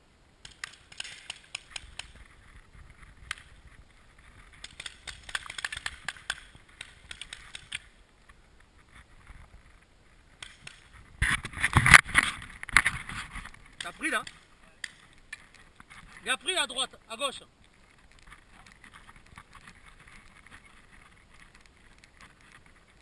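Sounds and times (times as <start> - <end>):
paintball markers firing: 0.4 - 2.2, 4.6 - 7.9, 10.4 - 10.9, 13.8 - 15.2
rustle of player on grass: 1.1 - 23.0.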